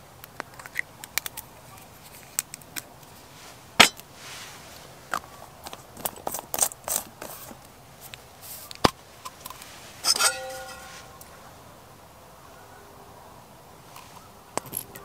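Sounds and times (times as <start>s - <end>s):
metal pot clanking: 3.8s - 4.0s, 10.0s - 11.3s.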